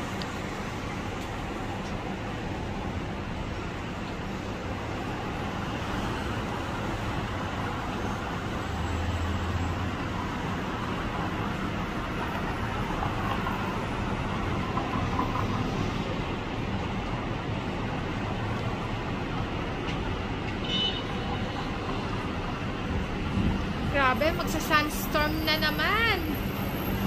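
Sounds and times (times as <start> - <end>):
sandstorm wind rushing: 22.3 - 24.9.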